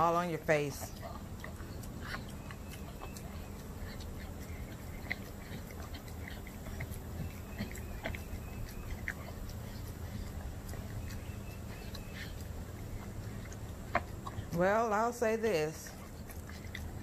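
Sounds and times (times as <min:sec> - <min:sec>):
dog licking and chewing food: 0:00.0 - 0:17.0.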